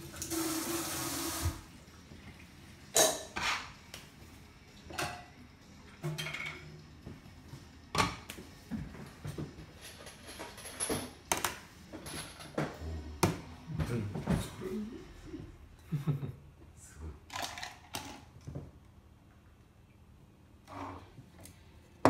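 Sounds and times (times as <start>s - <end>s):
running water: 0.0s - 2.9s
dishes and utensils clinking: 2.8s - 3.8s, 4.8s - 6.8s, 8.9s - 12.8s.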